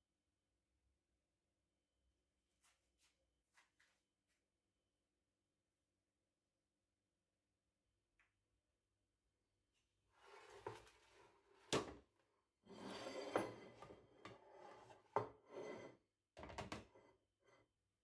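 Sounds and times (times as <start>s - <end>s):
metal tray scraping on wood: 12.7s - 16.0s.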